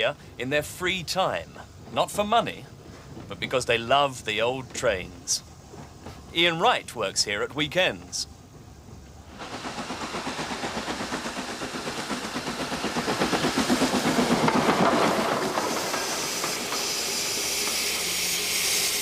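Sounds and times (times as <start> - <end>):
steam locomotive chugging: 0.0 - 19.0
steam hissing: 9.1 - 19.0.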